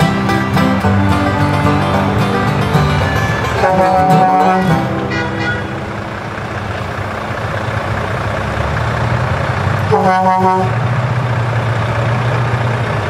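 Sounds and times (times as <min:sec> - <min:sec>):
truck engine running: 0:00.0 - 0:13.0
horn toot: 0:00.5 - 0:07.2.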